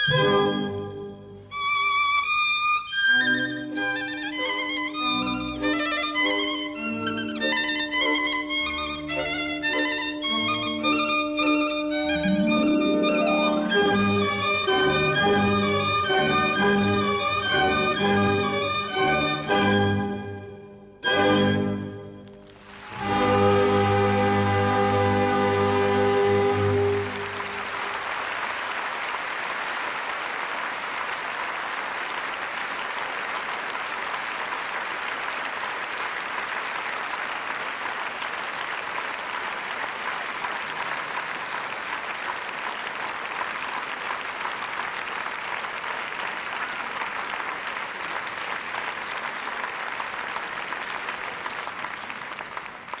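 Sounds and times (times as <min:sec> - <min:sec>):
audience applauding: 0:03.0 - 0:20.0, 0:22.2 - 0:53.0.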